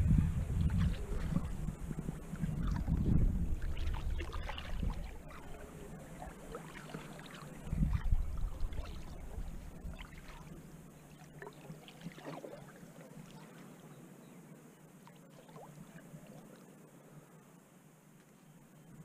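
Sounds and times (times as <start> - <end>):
faint low hum: 0.0 - 19.0
water splashing and trickling: 0.5 - 13.8, 15.0 - 16.7.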